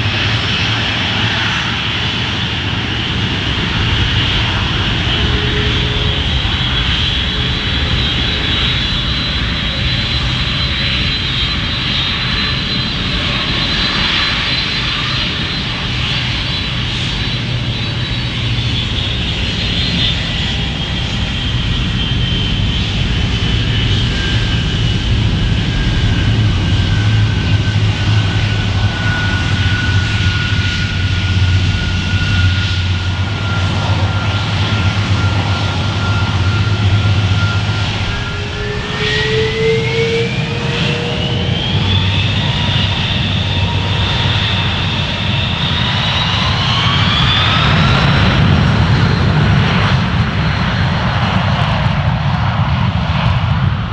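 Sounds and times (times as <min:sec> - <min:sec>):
jet engines roaring with whine: 0:00.0 - 0:53.9.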